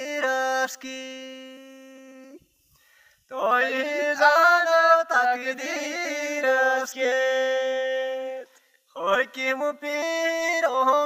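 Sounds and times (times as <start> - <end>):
man singing unaccompanied: 0.0 - 2.4, 3.3 - 11.0.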